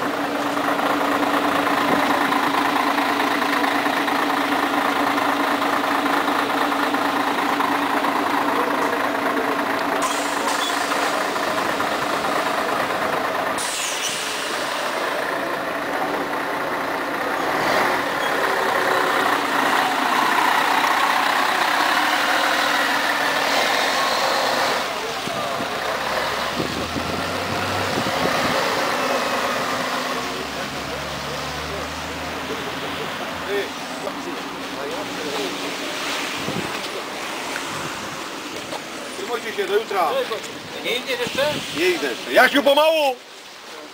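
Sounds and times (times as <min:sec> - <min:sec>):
bus diesel engine: 0:00.0 - 0:43.9
sharp air hiss: 0:10.0 - 0:11.2, 0:13.6 - 0:15.0.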